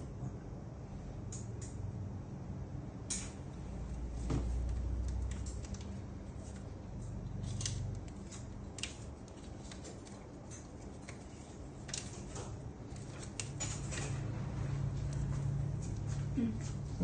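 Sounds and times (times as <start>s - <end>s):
low steady hum: 0.0s - 17.0s
metal instruments clicking and snipping: 5.0s - 14.2s.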